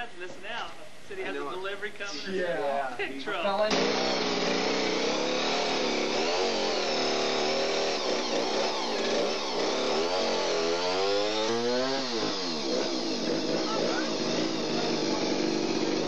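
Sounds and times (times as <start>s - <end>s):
chainsaw running hard: 3.7s - 16.0s.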